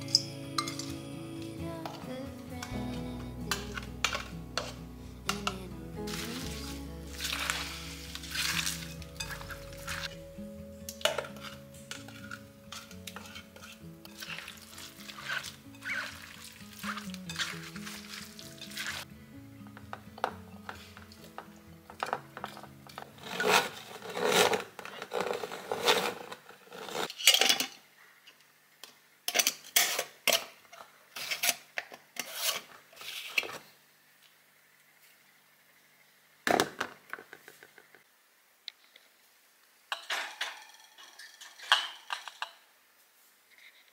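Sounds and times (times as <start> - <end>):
dishes and utensils scraping: 0.0 - 1.0, 3.5 - 10.2, 10.9 - 19.1, 20.2 - 27.8, 29.3 - 31.6, 32.2 - 33.6, 39.9 - 42.6
dishes clattering: 39.9 - 42.6.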